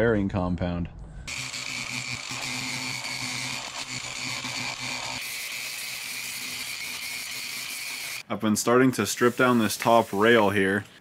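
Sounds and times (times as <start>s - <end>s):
angle grinder sanding: 1.3s - 8.2s.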